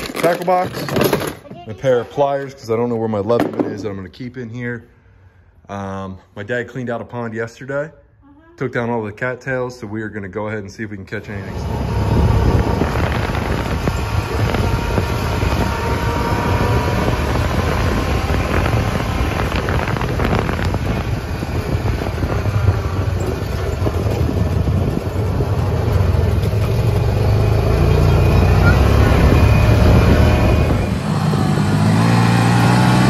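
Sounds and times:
knocks and rattles: 0.0s - 1.8s
vehicle engine running: 11.2s - 33.0s
wind buffeting microphone: 11.5s - 33.0s.

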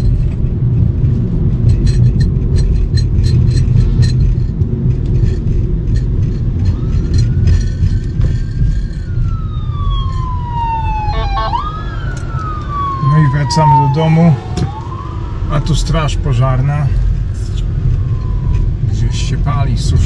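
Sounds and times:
car driving rumble: 0.0s - 20.0s
fire engine siren wailing: 6.5s - 20.0s.

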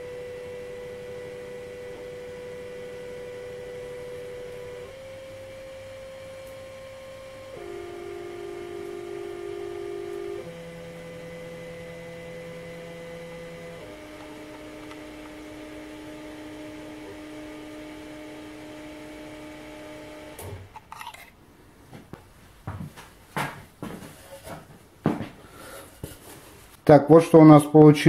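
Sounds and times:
stepper motors whining: 0.0s - 21.3s.

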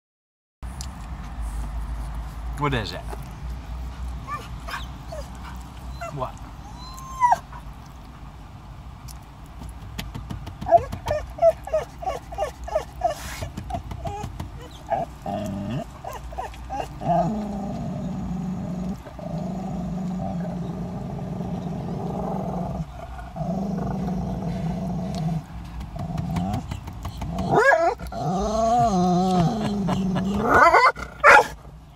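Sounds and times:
dog whining: 4.2s - 7.7s, 10.6s - 31.5s
dog growling: 14.0s - 31.3s.

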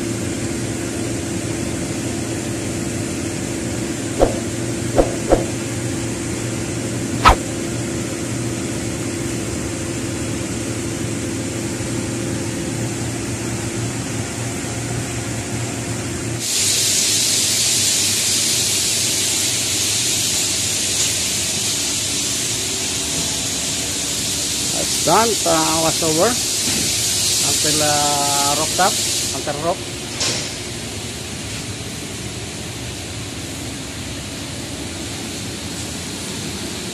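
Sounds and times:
ventilation mechanical hum: 0.0s - 36.9s
steady high hiss: 24.2s - 29.8s.

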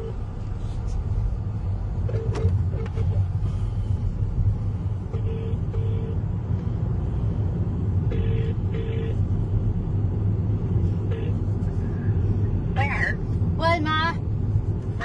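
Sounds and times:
car road and engine rumble: 0.0s - 15.0s.

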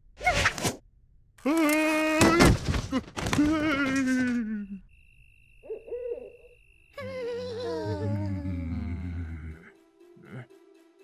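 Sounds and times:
cartoon voice moaning: 7.0s - 9.6s
low grumbling voice: 7.6s - 9.7s.

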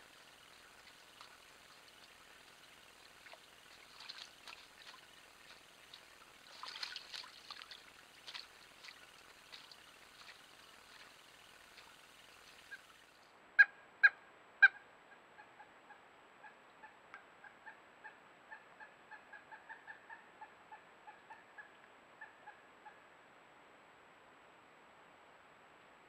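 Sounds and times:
woodpecker calling: 0.0s - 13.0s.

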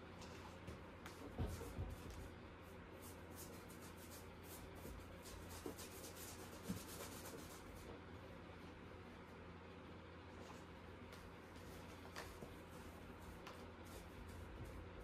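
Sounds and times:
paintbrush scratching on canvas: 2.6s - 7.9s.

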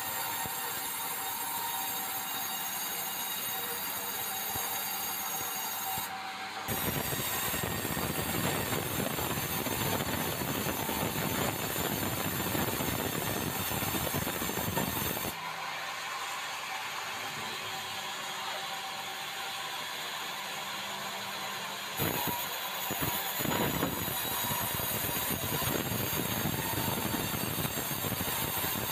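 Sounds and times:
band saw cutting log: 0.0s - 16.3s, 17.1s - 28.9s
band saw blade whine: 0.0s - 28.9s.

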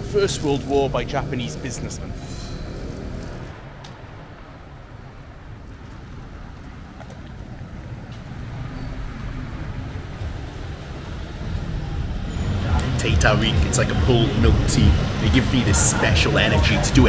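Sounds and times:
cars driving on road: 0.0s - 17.0s.

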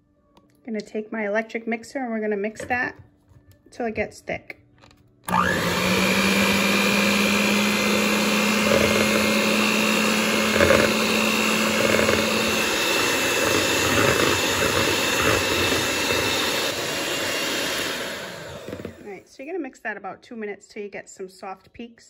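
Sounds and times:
electric hand mixer whining: 5.3s - 19.3s.

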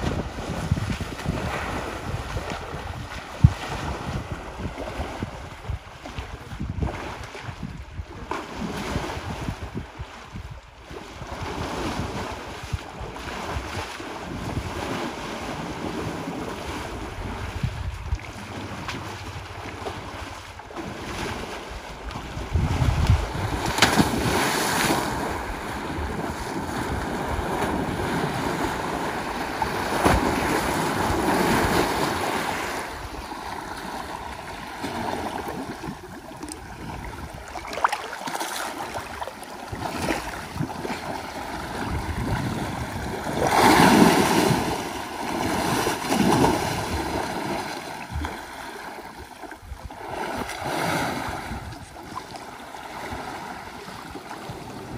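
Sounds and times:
elephant splashing through water: 10.9s - 49.2s.

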